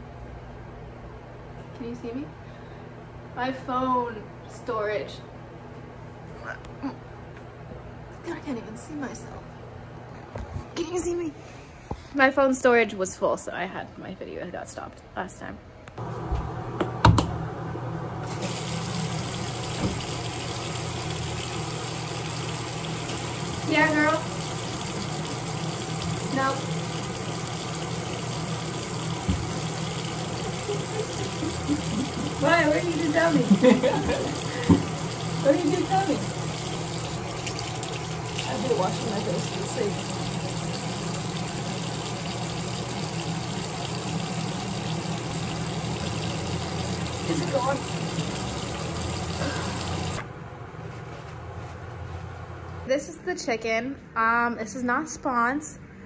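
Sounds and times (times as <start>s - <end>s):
water running from a tap: 18.3s - 50.2s.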